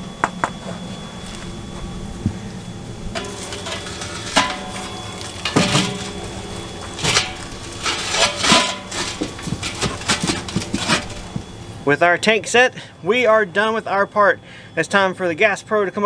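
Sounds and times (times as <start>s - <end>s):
metallic ringing: 0.0s - 11.9s
metal tank knocking and scraping: 3.1s - 11.5s.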